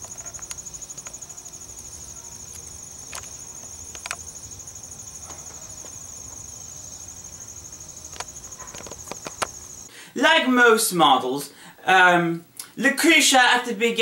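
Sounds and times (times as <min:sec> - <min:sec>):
sharp clicks: 0:00.0 - 0:01.2, 0:02.5 - 0:04.3, 0:08.1 - 0:09.6
insects chirping: 0:00.0 - 0:10.0.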